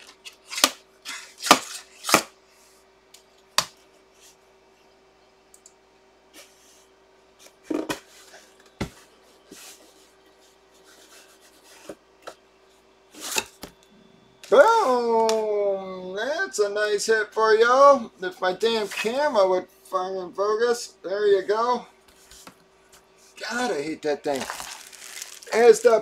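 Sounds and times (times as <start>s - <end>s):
faint steady hum: 0.0s - 26.0s
cardboard rustling: 24.3s - 26.0s.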